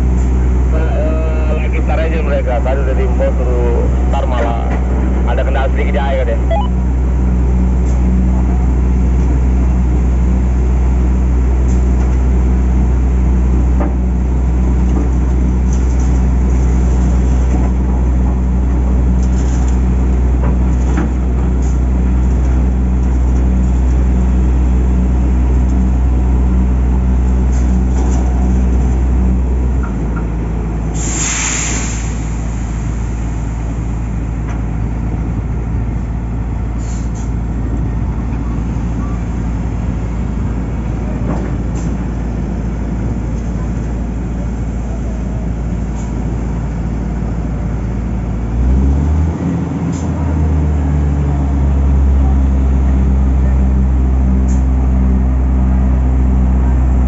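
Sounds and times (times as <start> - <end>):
diesel engine droning: 0.0 - 57.0.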